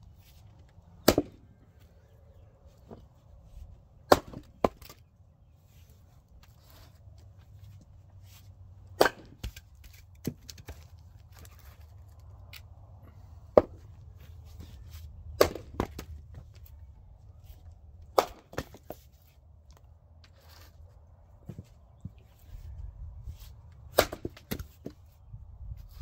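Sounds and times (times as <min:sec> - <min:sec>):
axe splitting firewood: 0:00.2 - 0:01.7, 0:03.9 - 0:05.1, 0:08.4 - 0:16.7, 0:17.6 - 0:19.2, 0:23.4 - 0:25.2.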